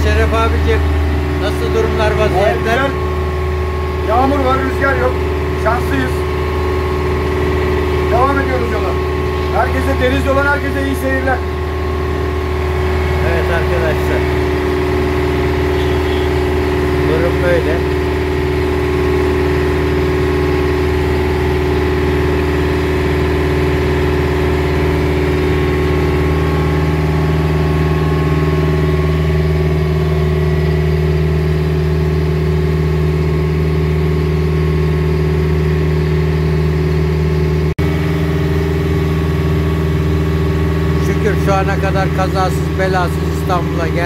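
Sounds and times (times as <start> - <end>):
motor boat engine droning: 0.0 - 44.0.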